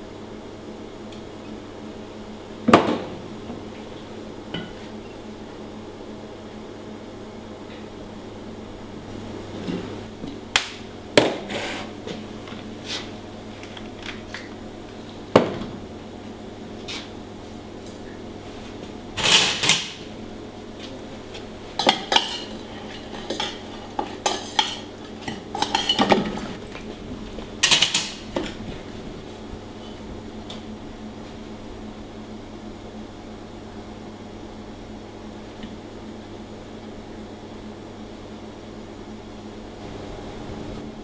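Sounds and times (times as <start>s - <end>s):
steady background hum: 0.0s - 41.0s
plates and bowls clinking: 21.8s - 26.6s.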